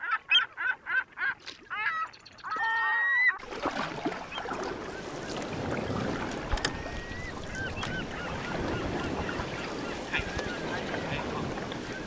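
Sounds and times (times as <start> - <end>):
gull calling: 0.0 - 3.4, 4.2 - 12.0
water and wind noise: 0.0 - 12.0.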